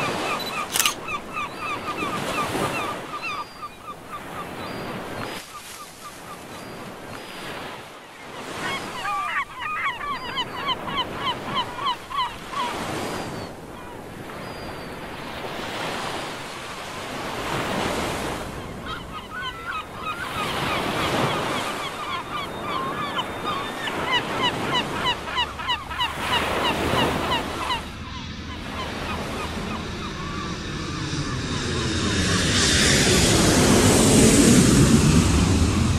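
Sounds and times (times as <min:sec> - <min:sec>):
birds calling in rapid notes: 0:00.0 - 0:07.7, 0:08.4 - 0:15.0, 0:17.8 - 0:31.9
wind: 0:00.0 - 0:35.9
waves washing on shore: 0:03.8 - 0:28.0, 0:32.5 - 0:35.9.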